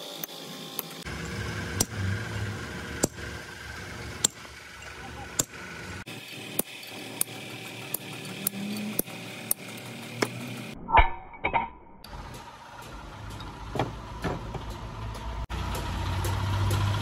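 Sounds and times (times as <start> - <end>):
hammer striking metal: 1.7 - 3.3, 4.2 - 11.8.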